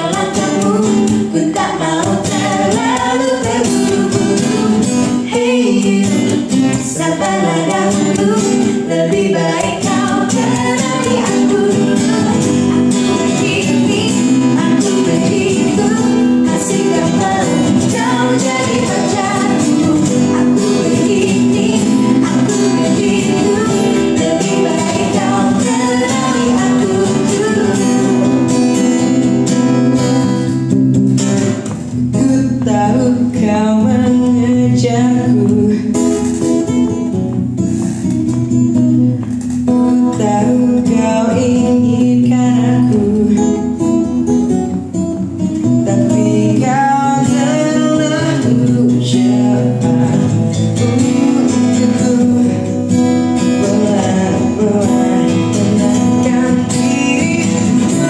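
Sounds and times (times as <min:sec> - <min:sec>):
boy and women singing pop song: 0:00.0 - 0:30.6, 0:31.2 - 0:44.7, 0:45.4 - 0:58.0
acoustic guitar accompaniment: 0:00.0 - 0:58.0.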